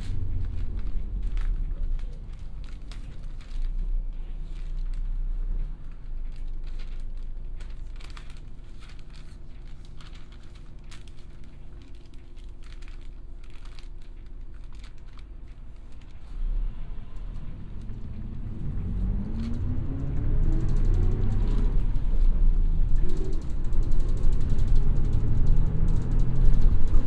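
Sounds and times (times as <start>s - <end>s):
bus engine: 0.0s - 27.0s
clicks and rattles: 22.8s - 27.0s.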